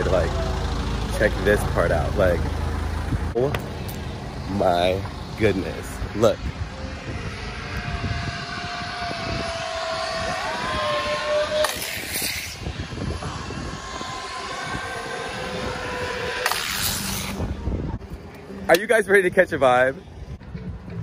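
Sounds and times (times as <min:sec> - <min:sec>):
wind buffeting microphone: 0:03.0 - 0:21.0
zip-line trolleys whining on cable: 0:03.9 - 0:18.0.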